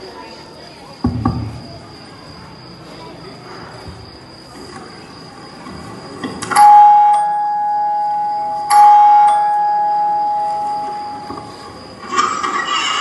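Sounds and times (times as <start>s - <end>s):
two-note electronic chime: 6.6s - 11.4s.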